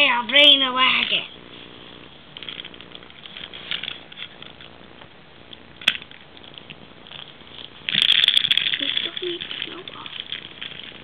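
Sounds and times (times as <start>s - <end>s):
plastic toys rustling and tapping: 2.4s - 4.8s, 5.8s - 11.0s.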